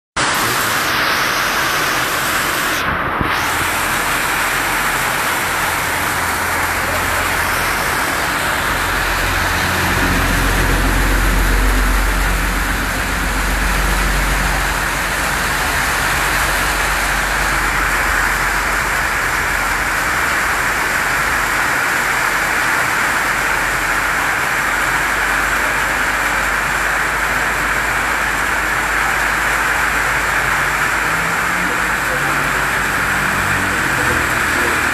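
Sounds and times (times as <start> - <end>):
heavy rain on metal roof: 0.2 - 34.9
low rumble: 1.0 - 21.4.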